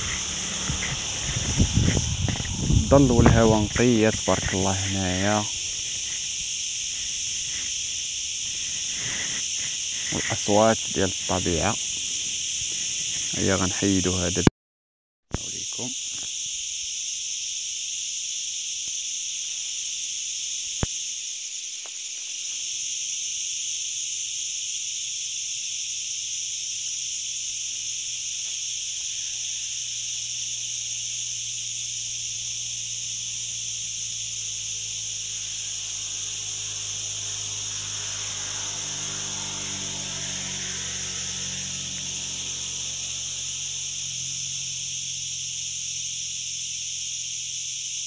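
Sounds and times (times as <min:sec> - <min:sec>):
low rumble: 0:00.0 - 0:04.6
crickets shrilling: 0:00.0 - 0:14.5, 0:15.3 - 0:48.0.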